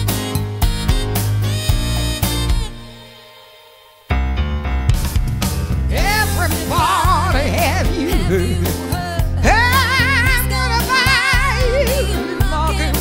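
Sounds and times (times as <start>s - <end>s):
band with steady bass line: 0.0s - 3.0s, 4.2s - 13.0s
person singing with vibrato: 5.9s - 13.0s.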